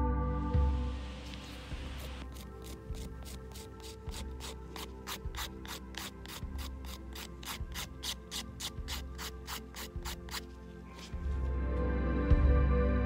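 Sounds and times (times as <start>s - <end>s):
nail file rasping: 1.3s - 11.1s.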